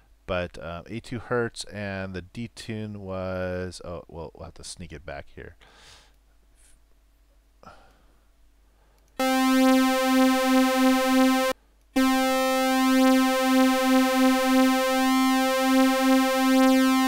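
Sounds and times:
synthesizer sawtooth note: 9.2 - 17.0.

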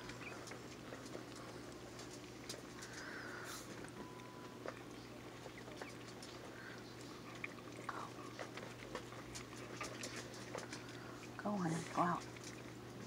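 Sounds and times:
dog licking and chewing: 3.6 - 13.0.

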